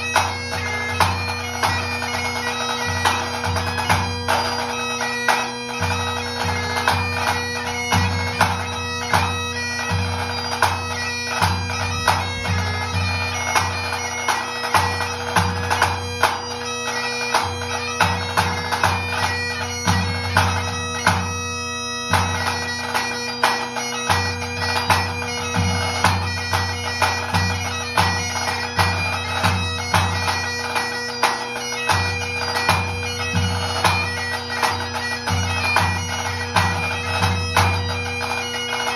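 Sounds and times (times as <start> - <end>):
bagpipe playing over drones: 0.0 - 38.9
tenor drum beats: 5.3 - 16.4, 23.4 - 38.9.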